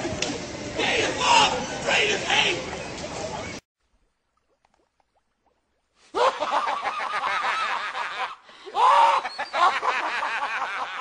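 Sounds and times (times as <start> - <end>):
men laughing loudly: 6.1 - 11.0.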